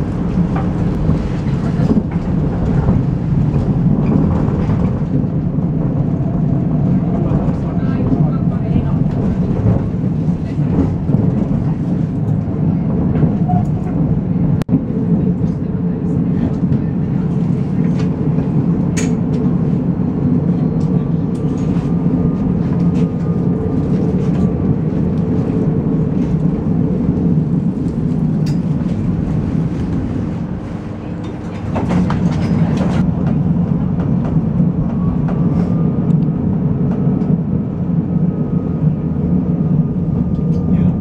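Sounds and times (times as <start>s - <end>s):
tram rumbling on rails: 0.0s - 41.0s.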